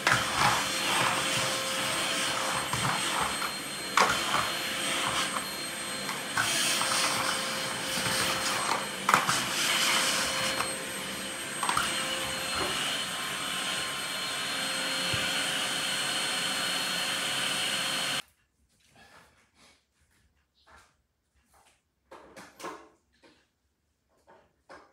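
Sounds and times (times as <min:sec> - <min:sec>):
vacuum cleaner running: 0:00.0 - 0:18.2.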